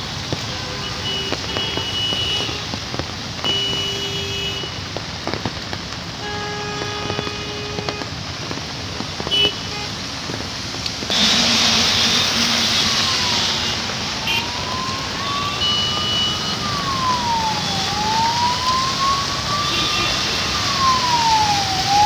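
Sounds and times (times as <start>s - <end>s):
rain on a wet street: 0.0s - 22.0s
traffic passing: 0.0s - 22.0s
vehicle horn: 3.4s - 4.8s, 6.2s - 8.1s, 19.6s - 20.5s.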